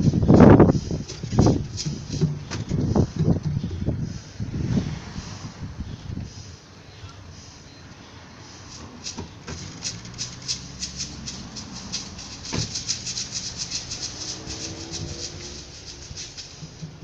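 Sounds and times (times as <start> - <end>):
samba percussion rattling: 8.9 - 17.0.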